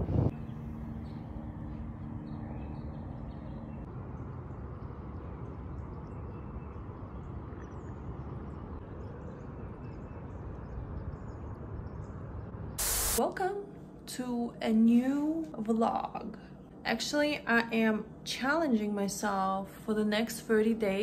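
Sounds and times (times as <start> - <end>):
low steady hum: 0.0 - 21.0.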